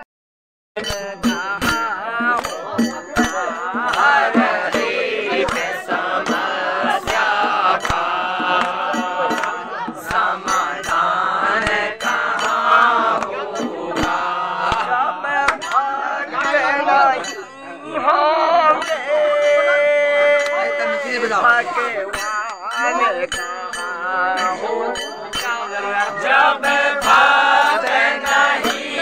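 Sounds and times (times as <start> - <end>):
drum struck with a stick: 0.8 - 15.9
men singing in unison: 0.8 - 29.0.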